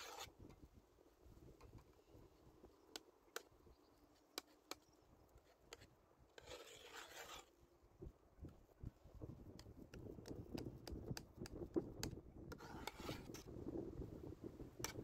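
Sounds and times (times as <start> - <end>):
wind rustling grass: 8.0 - 15.0.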